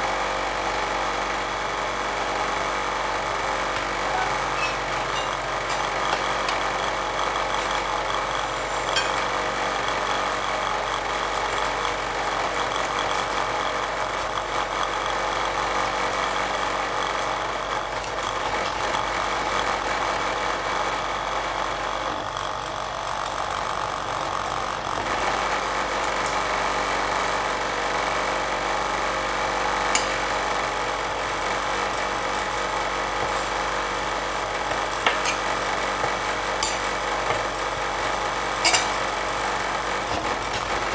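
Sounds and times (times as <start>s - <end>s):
machine humming: 0.0s - 40.9s
steel spatulas scraping a pan: 4.0s - 6.0s, 35.0s - 35.6s, 36.6s - 37.0s, 38.6s - 39.0s.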